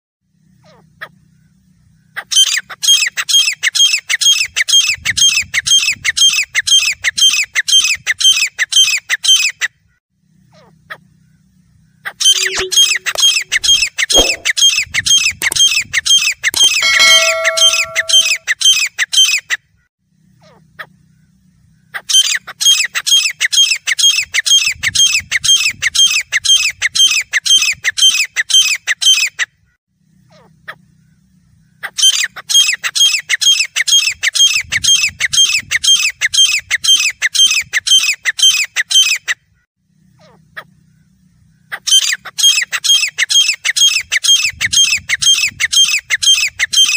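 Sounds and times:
bird calling harsh notes: 12.2s - 14.7s, 16.6s - 18.5s
brief steady tones: 12.3s - 14.5s, 16.6s - 18.4s.

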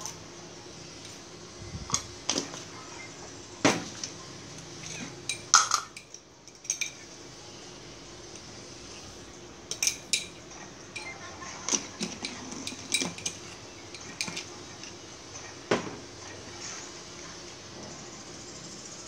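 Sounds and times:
metal spoon clinking: 4.8s - 7.0s, 9.7s - 10.4s.

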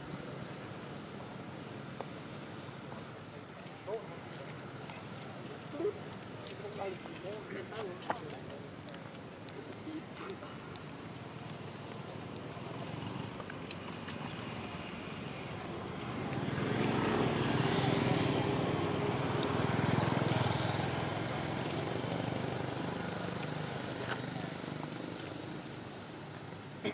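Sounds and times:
vehicle engine passing by: 14.3s - 25.2s.

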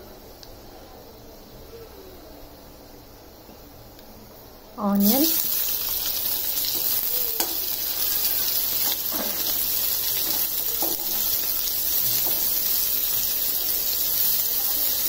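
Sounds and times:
onions sizzling in hot oil: 4.8s - 15.0s.

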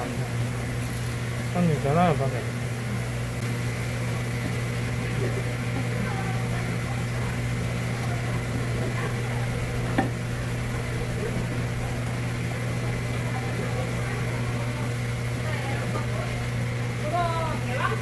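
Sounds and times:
low machine hum: 0.0s - 18.0s.

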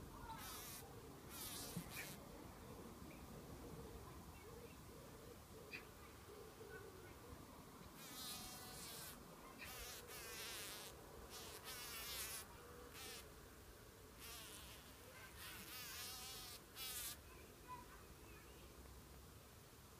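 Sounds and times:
bumblebee buzzing: 0.4s - 2.2s, 8.0s - 13.2s, 14.2s - 17.2s.

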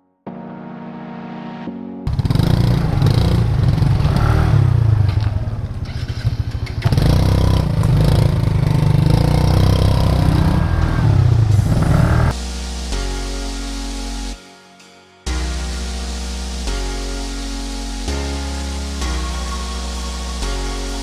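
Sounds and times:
motor scooter engine: 2.1s - 12.3s.

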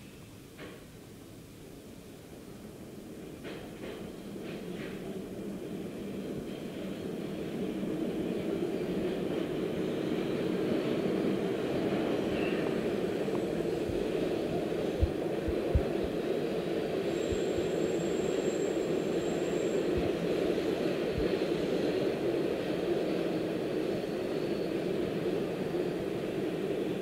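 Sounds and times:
subway train rumbling: 0.0s - 27.0s
high-pitched whine: 13.3s - 21.3s.

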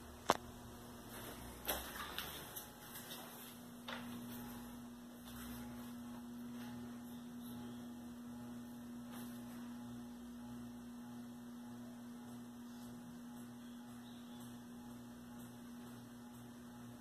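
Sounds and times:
ceiling fan motor hum: 0.0s - 17.0s.

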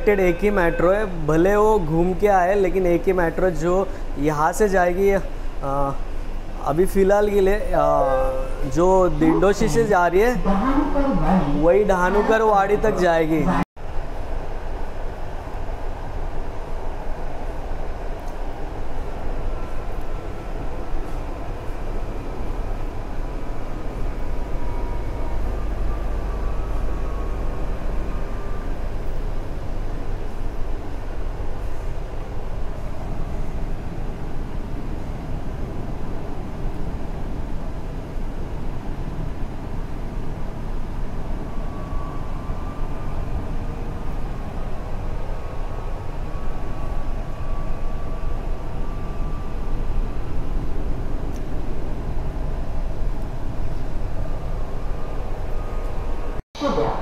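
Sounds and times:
faint whine: 0.0s - 13.7s, 14.8s - 57.0s
train rumbling in motion: 0.0s - 57.0s.

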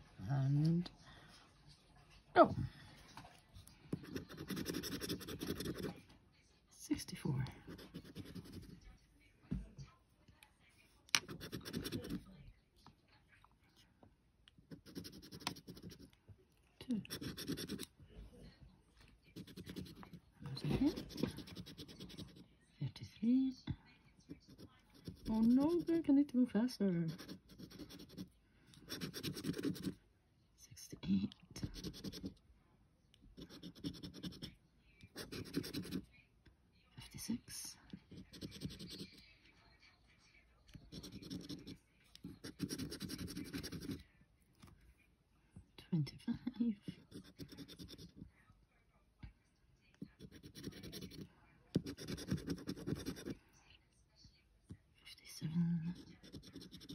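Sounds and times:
scratchcard being scraped: 4.0s - 5.9s, 7.7s - 8.7s, 11.2s - 12.2s, 14.7s - 16.0s, 17.0s - 17.9s, 19.4s - 22.4s, 27.1s - 28.3s, 28.9s - 30.0s, 31.6s - 32.3s, 33.4s - 34.5s, 35.2s - 36.0s, 38.1s - 39.2s, 40.9s - 44.0s, 47.0s - 48.2s, 50.2s - 51.2s, 51.8s - 53.3s, 56.0s - 56.9s.

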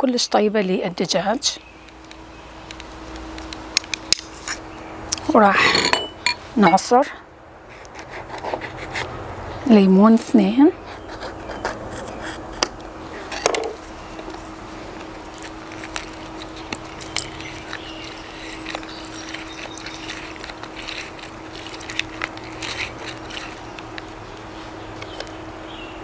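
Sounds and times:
citrus squeezer clicks and drips: 15.0s - 25.4s.

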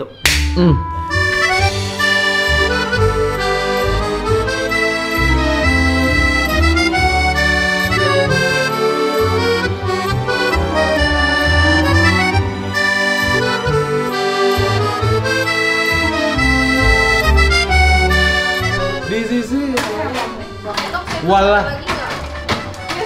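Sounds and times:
background music with bass line: 0.0s - 20.8s.

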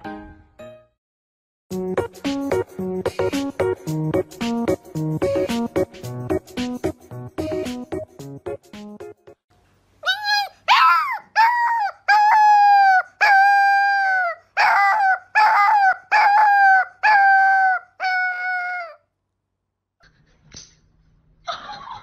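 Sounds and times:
background music: 1.7s - 9.4s
puppy howling: 10.0s - 19.0s.

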